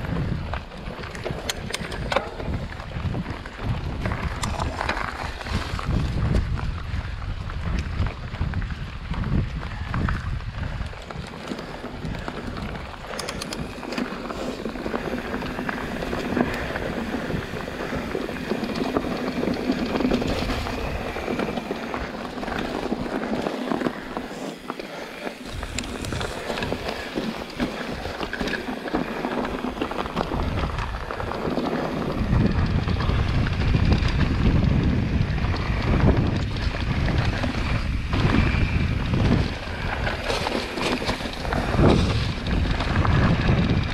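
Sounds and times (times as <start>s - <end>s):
bike tyres rattling on dirt trail: 0.0s - 43.9s
wind rushing over microphone: 0.0s - 43.9s.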